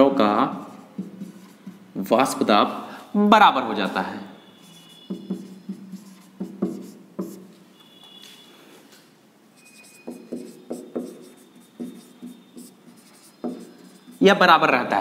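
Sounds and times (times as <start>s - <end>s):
handwriting taps and scratches: 0.5s - 1.9s, 4.9s - 8.2s, 9.6s - 14.3s.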